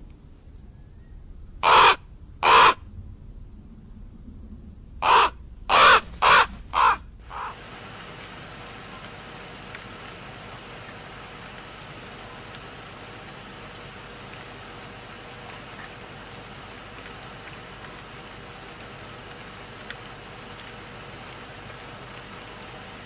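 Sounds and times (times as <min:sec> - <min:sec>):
steady outdoor hiss: 0:00.0 - 0:23.0
crow cawing: 0:01.6 - 0:02.8, 0:05.0 - 0:07.6.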